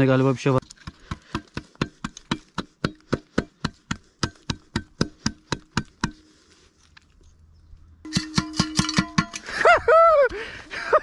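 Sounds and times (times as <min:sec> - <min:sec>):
tool hacking at wooden stump: 0:00.8 - 0:06.3.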